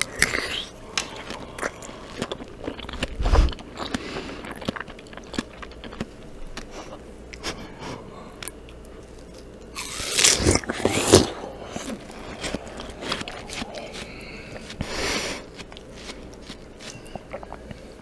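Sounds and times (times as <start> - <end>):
juicy chewing: 0.0 - 18.0
crunchy watermelon bite: 8.4 - 17.8.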